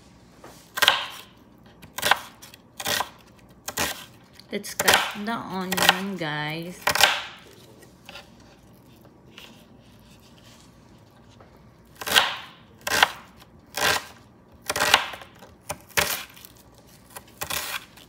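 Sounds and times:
knife chopping on cutting board: 0.7 - 4.2, 4.8 - 6.2, 6.8 - 8.6, 11.9 - 16.4, 17.1 - 18.0.

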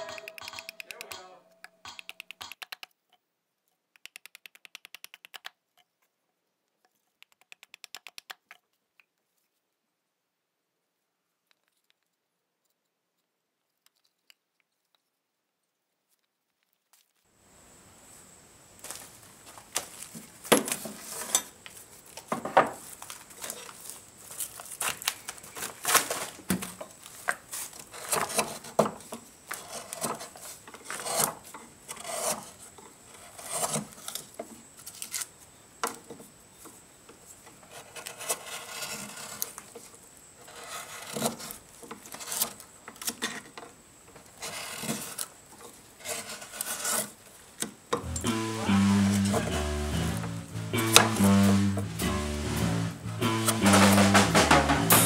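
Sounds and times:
carving tool scraping wood: 29.5 - 34.2, 37.6 - 39.6, 40.4 - 43.5, 46.0 - 47.2.

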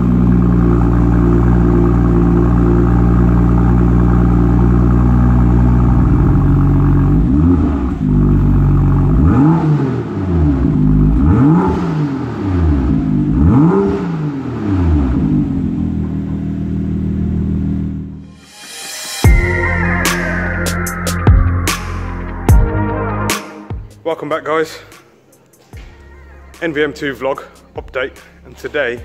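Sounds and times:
car engine idling: 0.0 - 18.2, 26.2 - 29.0
car engine revving: 0.0 - 18.4.

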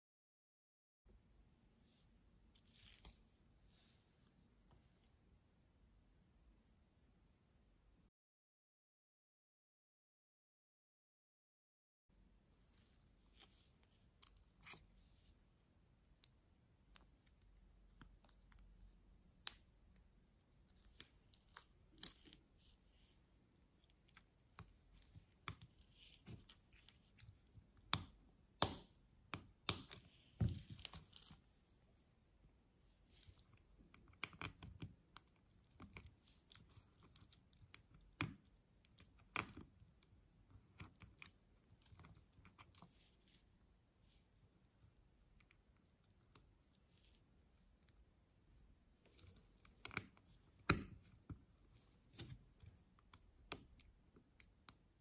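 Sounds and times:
small plastic clicks and scrapes: 13.3 - 15.6, 16.2 - 31.5, 33.0 - 44.8, 49.0 - 55.0.

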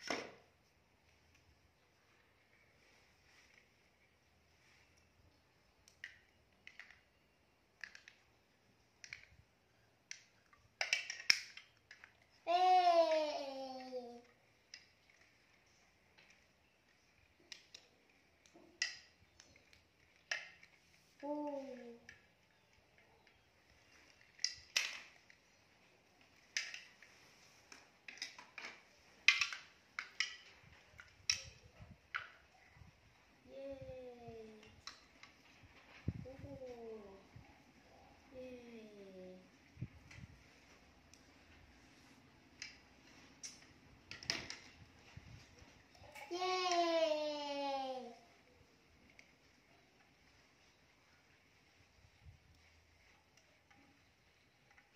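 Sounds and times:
plastic toys clicking: 5.8 - 9.4, 10.0 - 32.5, 34.5 - 35.8, 43.4 - 44.8.

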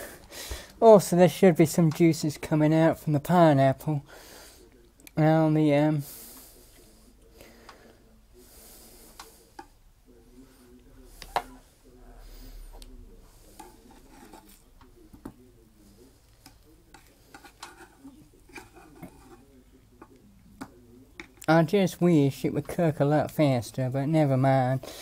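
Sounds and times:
spatula scraping and tapping pan: 13.5 - 15.4, 16.4 - 21.5.

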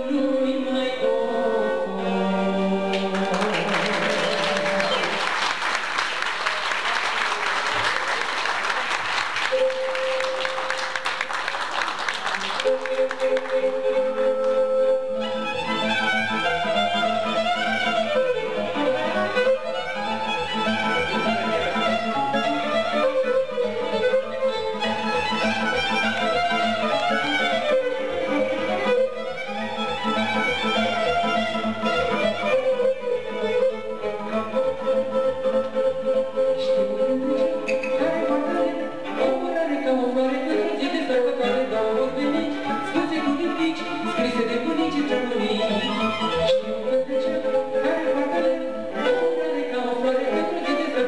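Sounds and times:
violin melody with sliding notes: 0.0 - 51.0
audience applauding: 2.9 - 14.0
held instrument note: 9.4 - 11.6.

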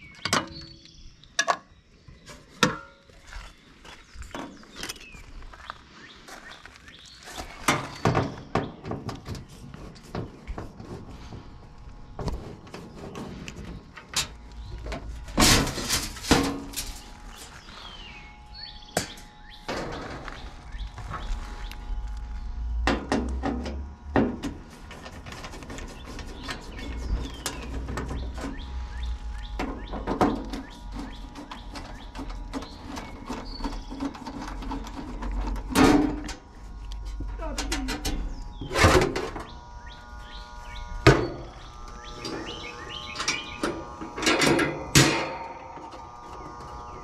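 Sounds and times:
birds chirping: 0.0 - 22.8, 24.6 - 35.7, 36.4 - 47.0.

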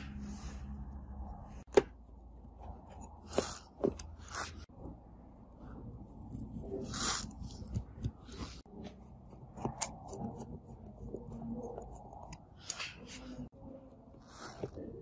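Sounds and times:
screwdriver clicking and scraping: 7.2 - 13.2.

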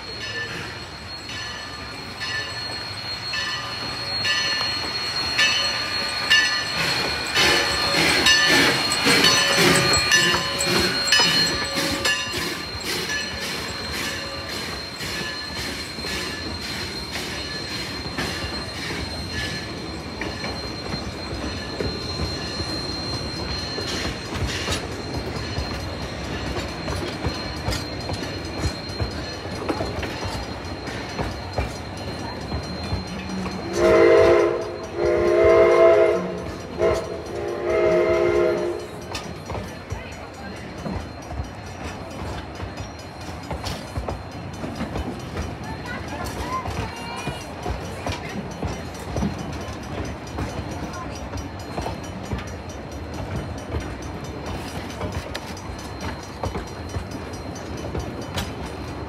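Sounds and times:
high wheel squeal: 0.0 - 44.8
steam locomotive rhythmic beats: 0.0 - 59.0
train coaches rumbling: 0.0 - 59.0.

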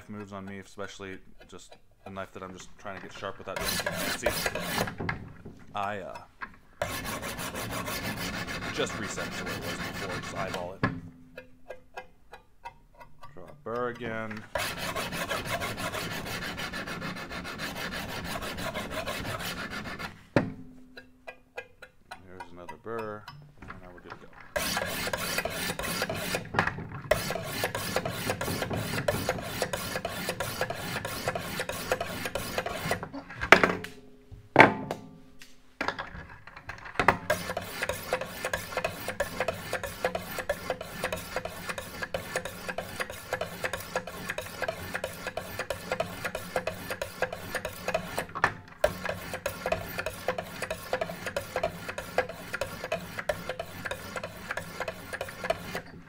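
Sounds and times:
sharpening stones rasping on blade: 3.6 - 5.0, 6.8 - 10.8, 14.5 - 20.2, 24.5 - 26.5, 27.1 - 33.0, 37.3 - 56.0.

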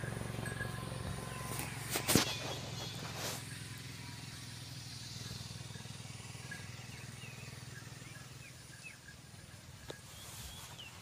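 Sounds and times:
faint bird chirps: 4.9 - 11.0.

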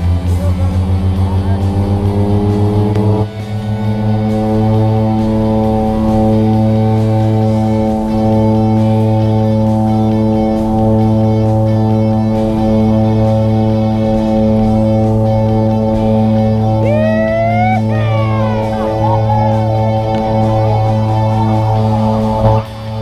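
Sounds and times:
guitar droning chord: 0.0 - 23.0.

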